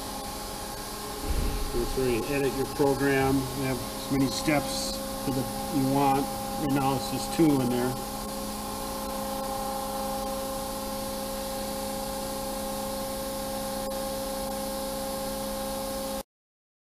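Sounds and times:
hydraulic machine hum: 1.2s - 6.6s.

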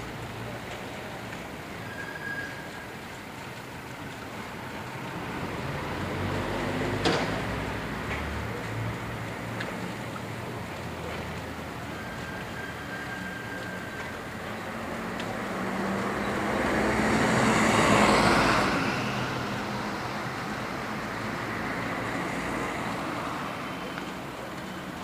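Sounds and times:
road vehicle passing: 0.0s - 25.0s
street background noise: 0.0s - 25.0s.

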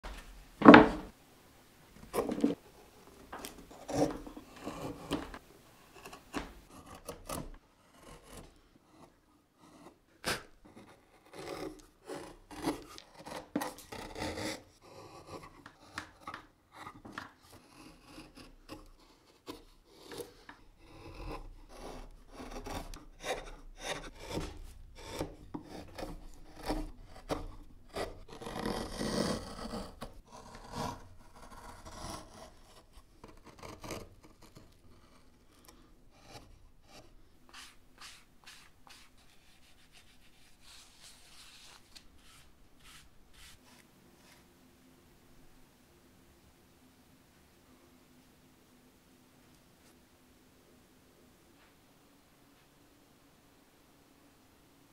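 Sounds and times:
loud wooden knock: 0.6s - 1.1s
carving gouge cutting wood: 3.2s - 44.4s.

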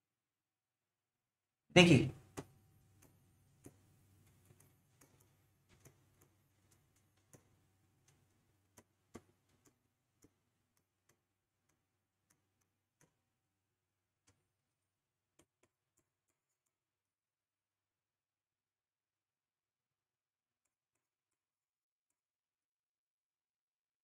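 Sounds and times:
marker pen tapping on board: 2.2s - 13.4s, 15.3s - 16.8s.

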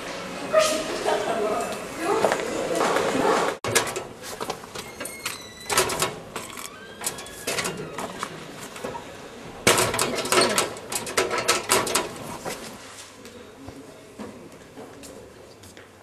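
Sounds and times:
metal locker door clattering shut: 3.6s - 4.2s, 4.8s - 8.2s, 9.6s - 12.2s
locker door clicks and knocks: 3.6s - 8.3s, 9.6s - 12.2s.

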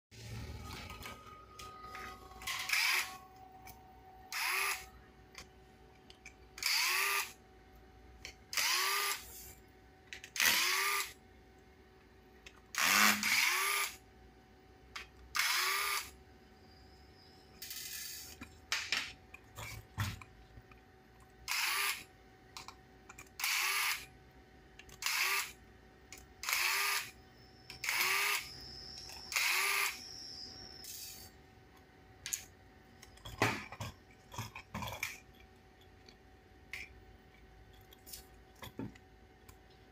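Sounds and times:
electric screwdriver whine: 0.7s - 3.3s, 4.3s - 4.9s, 6.6s - 7.4s, 8.5s - 9.5s, 10.4s - 11.2s, 12.8s - 14.0s, 15.4s - 16.1s, 21.5s - 22.1s, 23.4s - 24.1s, 25.0s - 25.6s, 26.4s - 31.3s.

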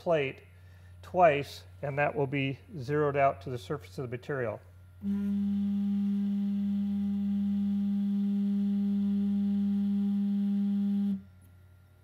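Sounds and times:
stepper motor whining: 5.0s - 11.3s.

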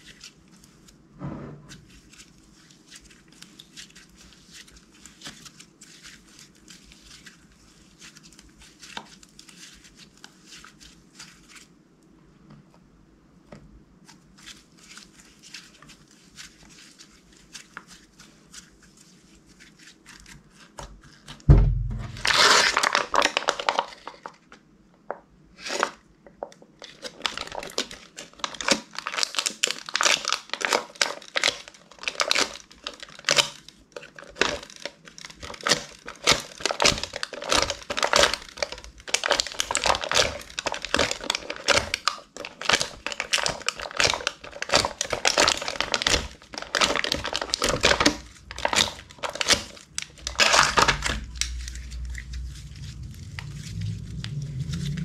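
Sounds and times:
slime being kneaded: 26.6s - 55.0s.

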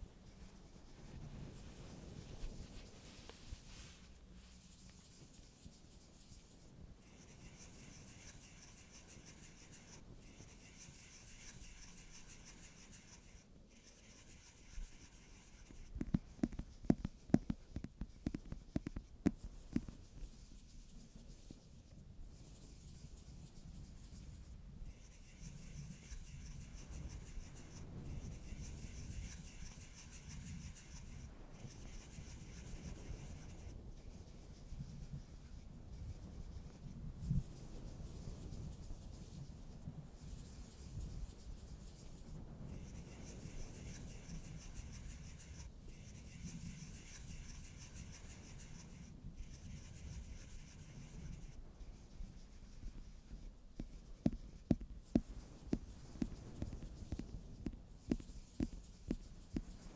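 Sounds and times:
faint steady hiss: 0.0s - 59.9s
fingernails scratching cardboard box: 7.0s - 19.1s, 24.9s - 33.7s, 42.8s - 51.6s.

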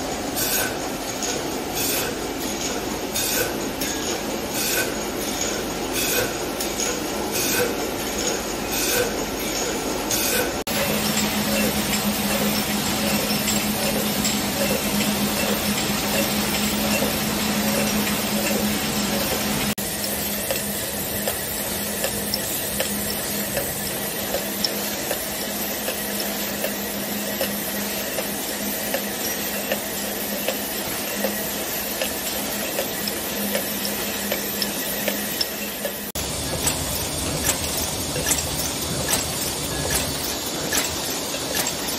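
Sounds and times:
machine hum: 10.6s - 41.9s.

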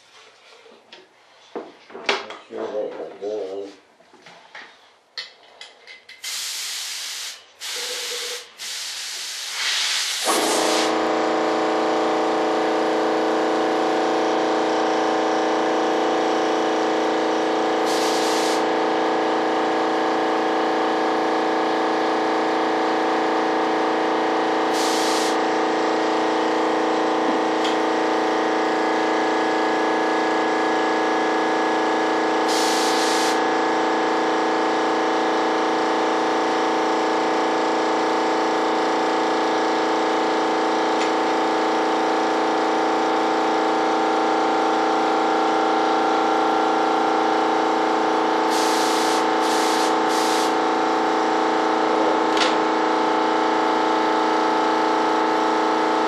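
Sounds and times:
spray gun hissing: 6.2s - 11.0s, 17.8s - 18.7s, 24.7s - 25.4s, 32.5s - 33.4s, 48.5s - 50.6s
air compressor humming: 6.2s - 56.0s.

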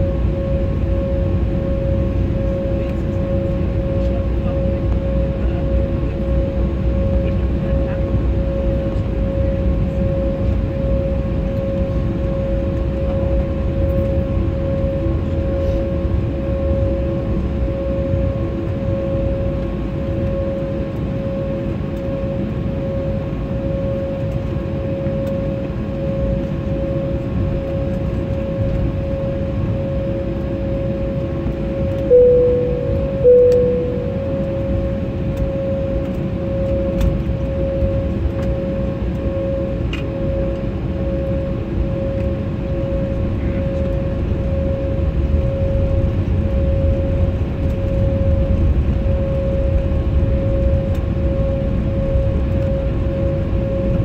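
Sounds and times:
jet engines idling hum: 0.0s - 54.0s
two-tone cabin chime: 32.1s - 34.8s.

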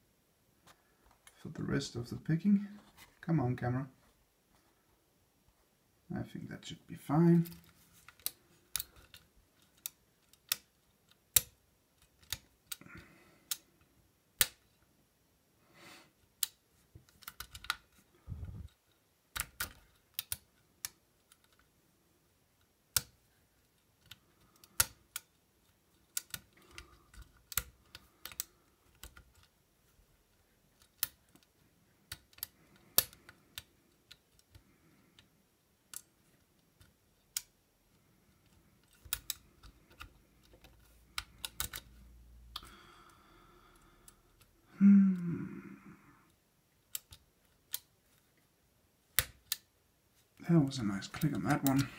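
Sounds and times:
lock pick clicking in lock: 8.2s - 12.8s, 26.1s - 29.5s, 38.8s - 41.9s, 46.8s - 47.9s.

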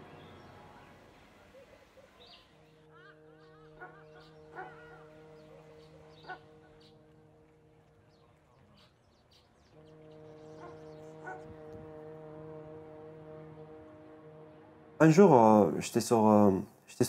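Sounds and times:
dog barking faintly: 3.8s - 6.6s, 10.6s - 11.6s
steady low hum: 9.5s - 16.8s.

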